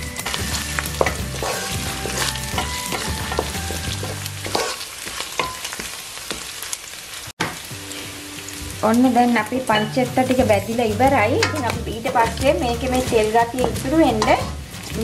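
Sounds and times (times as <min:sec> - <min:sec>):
meat sizzling in a pan: 0:00.0 - 0:15.0
wooden spatula scraping a pan: 0:00.2 - 0:06.4.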